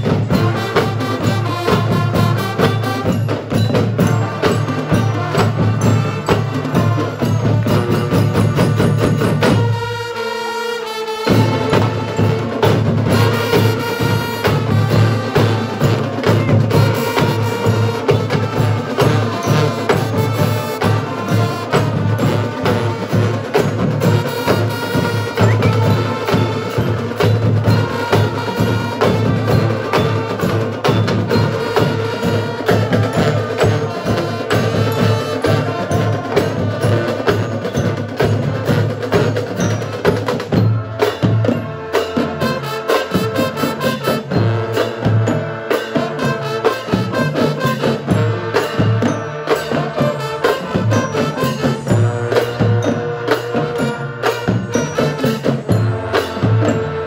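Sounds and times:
snare and bass drums beating: 0.0 - 10.0, 11.2 - 57.0
brass section playing tune: 0.0 - 57.0.

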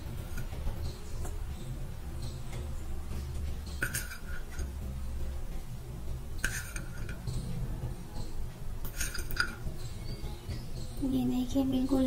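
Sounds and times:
steel plate clinking: 3.7 - 4.8, 6.4 - 10.2.

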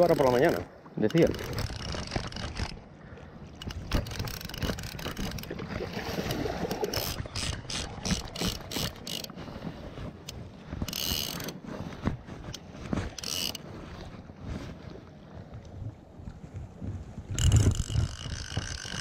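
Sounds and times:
fishing reel drag clicking: 0.0 - 2.8, 3.6 - 5.5, 6.2 - 9.4, 10.2 - 11.6, 12.5 - 13.6, 17.3 - 19.0
low rumble of water or wind: 0.0 - 19.0
fishing reel short buzzes: 6.6 - 9.3, 10.9 - 11.6, 13.2 - 13.6, 17.4 - 19.0.

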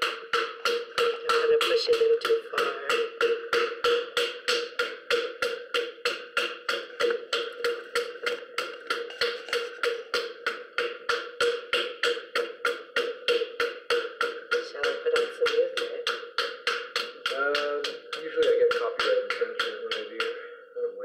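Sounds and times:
pottery wheel motor hum: 0.0 - 20.3
wet clay thumping against hands: 0.0 - 20.5.

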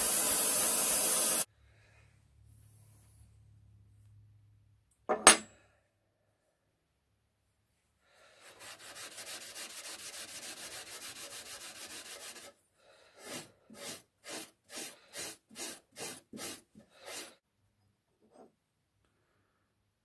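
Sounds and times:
metal part scrubbing on abrasive pad: 8.4 - 12.6, 13.2 - 17.4.

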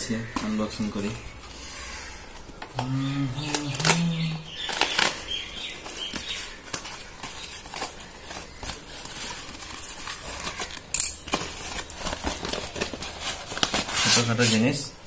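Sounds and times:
paper envelope crackling and tearing: 3.4 - 14.8.

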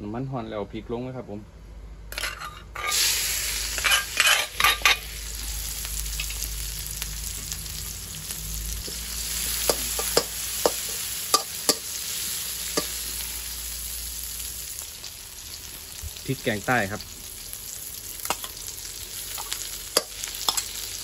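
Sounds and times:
chilies sizzling in hot oil: 2.1 - 21.0
metal spatula clicking on wok: 20.0 - 20.7.

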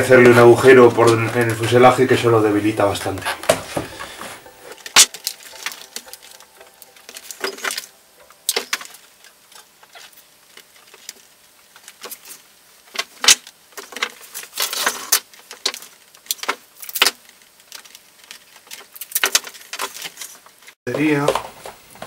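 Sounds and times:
cardboard rustling: 0.0 - 6.0.

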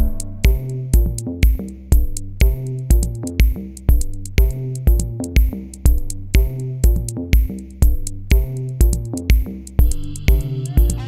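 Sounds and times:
held pitched notes: 0.0 - 1.3
steady drum beat: 0.0 - 11.0.

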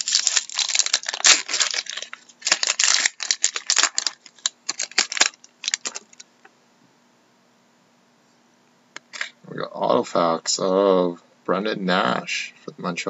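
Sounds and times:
card pack wrapper crinkling: 0.0 - 6.3.

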